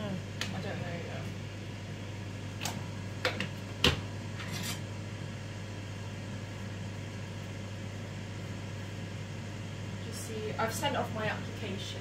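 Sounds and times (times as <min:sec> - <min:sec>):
steady low hum: 0:00.0 - 0:12.0
knife scraping plate: 0:04.4 - 0:04.9.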